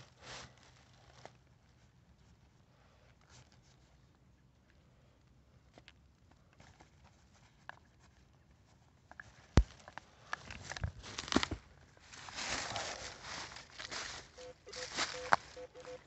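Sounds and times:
dry leaves crunching and rustling: 11.0 - 15.9.

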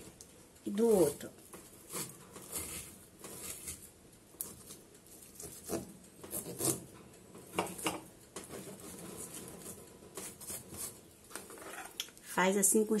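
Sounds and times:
knife scraping on cutting board: 1.8 - 6.9, 7.6 - 12.0.

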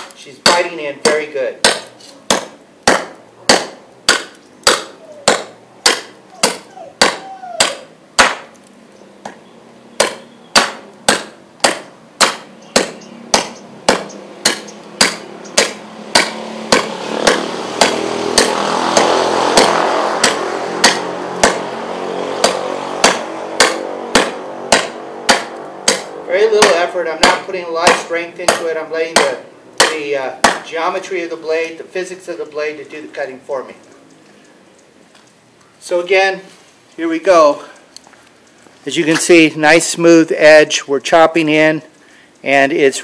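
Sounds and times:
knife chopping into hard wood: 0.0 - 8.5, 10.0 - 21.7, 22.4 - 30.7.

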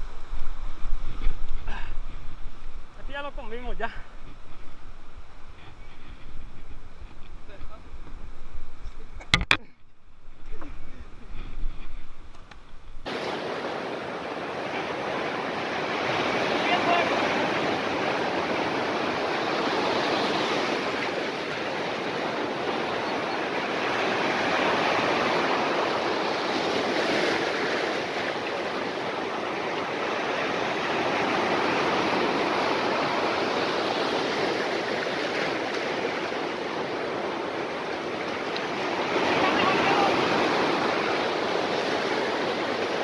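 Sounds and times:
ocean surf breaking: 12.9 - 43.0.

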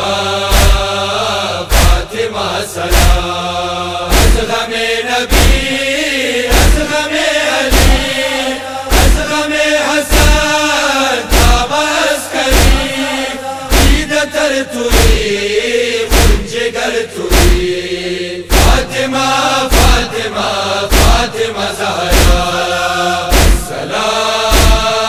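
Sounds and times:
men chanting in unison: 0.0 - 25.0
chest-beating thumps: 0.5 - 1.0, 1.7 - 2.1, 2.9 - 3.3, 4.1 - 4.6, 5.3 - 5.8, 6.5 - 7.0, 7.7 - 8.2, 8.9 - 9.3, 10.1 - 10.6, 11.3 - 11.8, 12.5 - 13.0, 13.7 - 14.1, 14.9 - 15.3, 16.1 - 16.6, 17.3 - 17.7, 18.5 - 19.0, 19.7 - 20.2, 20.9 - 21.4, 22.1 - 22.6, 23.3 - 23.8, 24.5 - 25.0.

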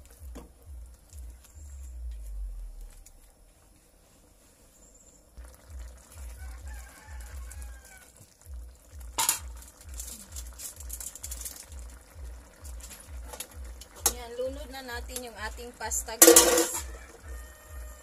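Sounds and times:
distant rooster crowing: 6.2 - 8.4, 16.5 - 18.0.

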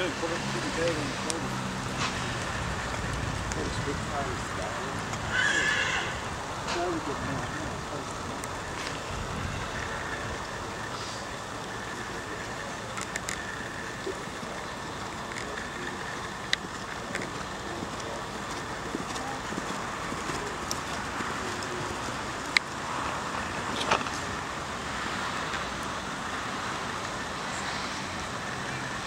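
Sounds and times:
outdoor background noise: 0.0 - 29.0
sharp clicks: 12.8 - 14.3.

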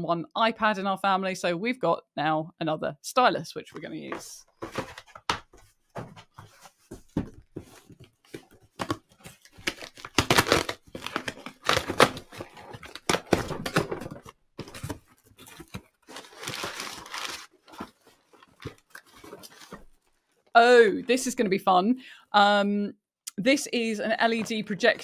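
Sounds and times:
cardboard and paper rustling: 4.1 - 20.4, 24.3 - 25.0
packing tape ripping: 9.4 - 13.8.

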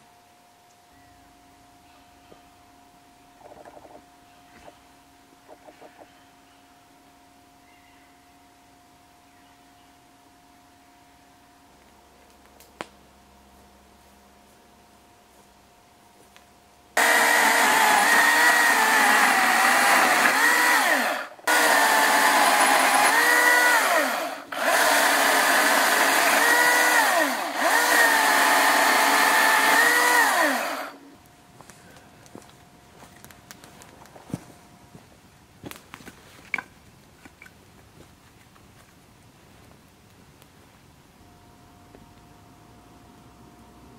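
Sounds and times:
electric chainsaw cutting branches: 17.0 - 31.1.

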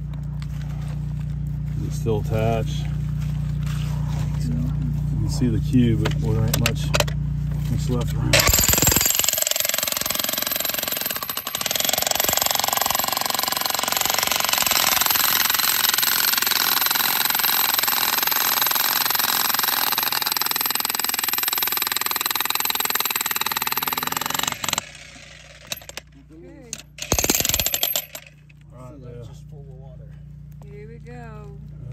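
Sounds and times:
jackhammer hammering rock: 8.3 - 26.1, 26.7 - 28.4.

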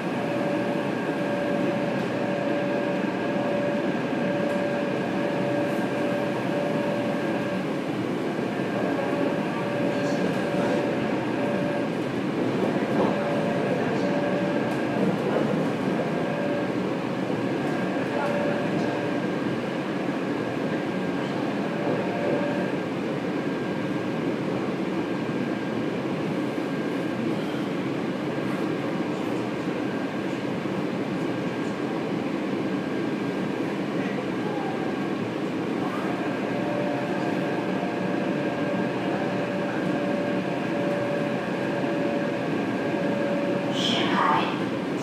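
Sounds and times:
thin high whine: 0.0 - 7.7
train rumble: 0.0 - 45.0.

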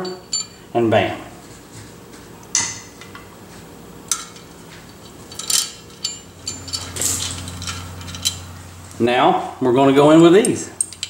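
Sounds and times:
metal spokes clinking: 4.1 - 8.7, 10.1 - 11.0.

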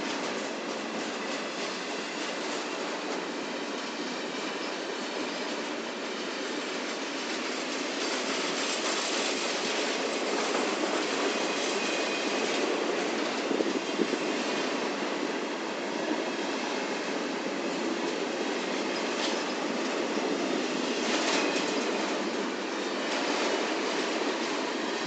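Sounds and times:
freight train wheels rumbling: 0.0 - 25.0.

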